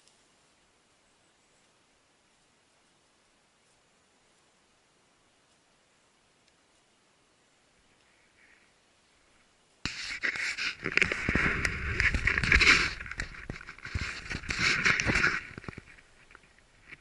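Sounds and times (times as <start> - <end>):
dry twigs rustling and crackling: 6.3 - 17.0
microphone handling bumps: 10.1 - 16.0.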